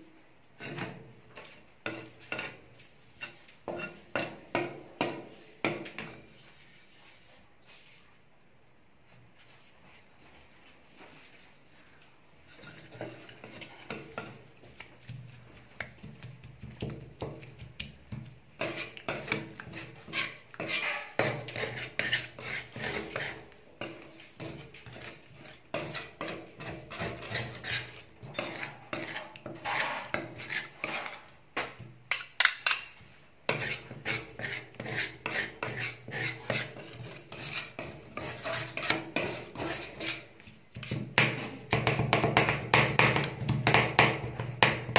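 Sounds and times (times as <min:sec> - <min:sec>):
metal spatulas scraping steel plate: 0:00.6 - 0:06.3, 0:12.5 - 0:14.4, 0:18.6 - 0:31.3, 0:32.1 - 0:41.4.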